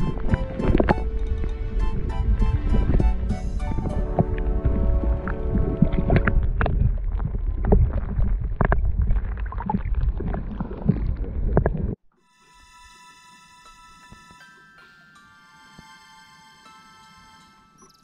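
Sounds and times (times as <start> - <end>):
soft music with steady tones: 0.0 - 6.4, 12.2 - 18.0
muffled rumbling of water: 0.0 - 12.1.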